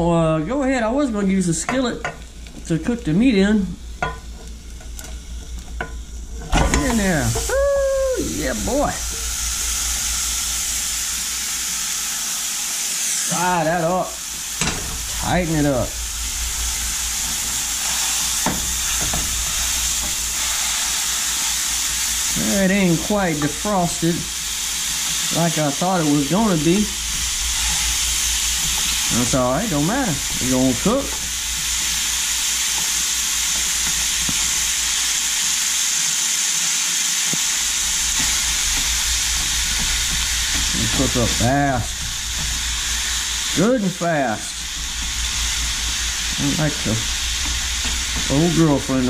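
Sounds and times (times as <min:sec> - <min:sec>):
meat sizzling in a saucepan: 0:00.0 - 0:49.0
spatula knocking a pan: 0:04.0 - 0:04.4, 0:18.4 - 0:20.2.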